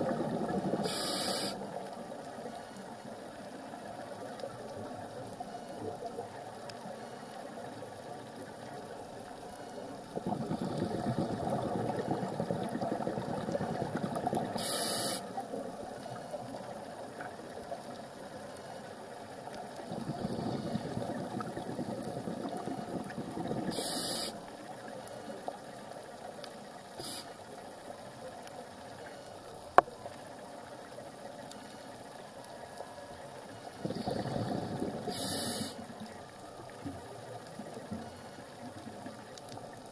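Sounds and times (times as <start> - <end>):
diver exhaling bubbles: 0.0 - 1.6, 10.1 - 15.2, 19.8 - 24.4, 33.8 - 35.8
underwater hiss: 0.0 - 2.8, 9.4 - 17.3, 18.6 - 25.8, 26.9 - 27.9, 33.5 - 36.2.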